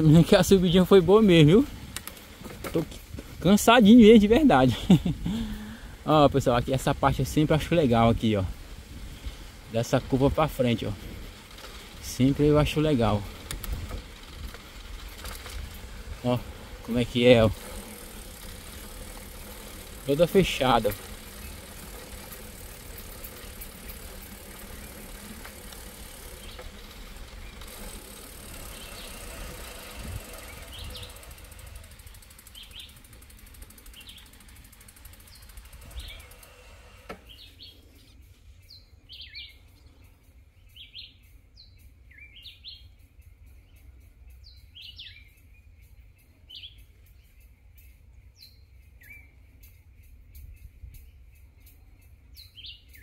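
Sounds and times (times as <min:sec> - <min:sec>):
wind and bicycle rolling noise: 0:00.0 - 0:53.0
bird chirping: 0:15.0 - 0:53.0.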